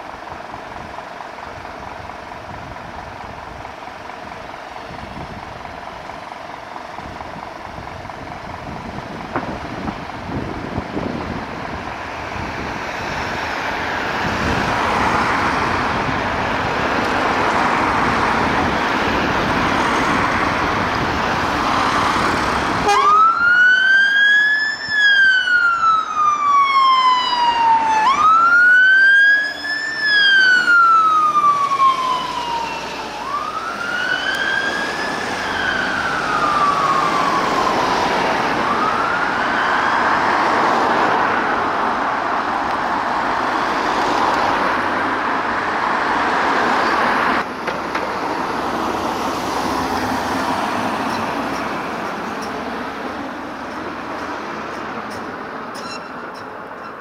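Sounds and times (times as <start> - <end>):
fire engine siren wailing: 5.6 - 44.2.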